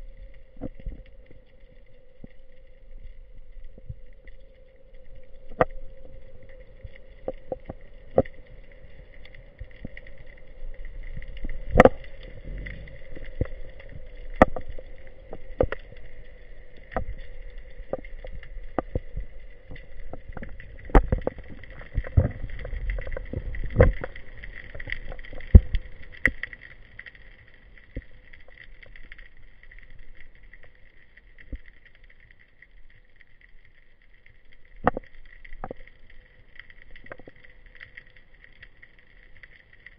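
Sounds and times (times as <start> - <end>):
lower hum: 0.0 - 19.4
low underwater rumble: 0.0 - 39.9
underwater clicks and knocks: 11.1 - 15.9, 16.8 - 26.6, 34.8 - 35.9.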